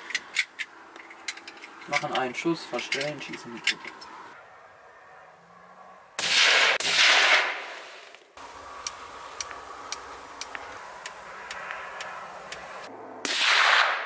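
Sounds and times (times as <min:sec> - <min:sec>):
suppressed rifle shot: 0:06.2 - 0:07.8, 0:13.3 - 0:14.0.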